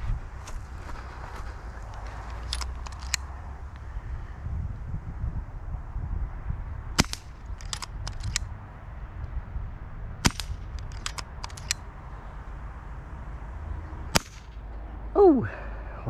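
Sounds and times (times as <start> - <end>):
air rifle shots: 7.0 - 8.5, 10.2 - 11.8, 14.1 - 14.6.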